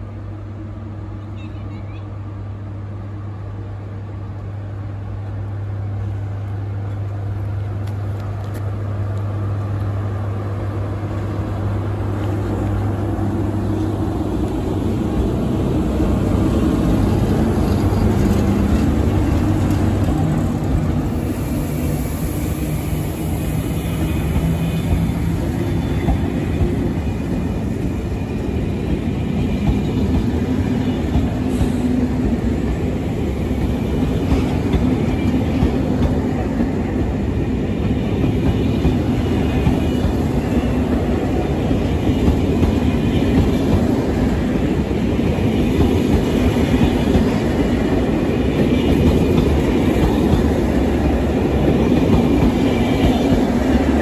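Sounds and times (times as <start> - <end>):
electric locomotive passing: 0.0 - 54.0
train coaches rolling by: 0.0 - 54.0.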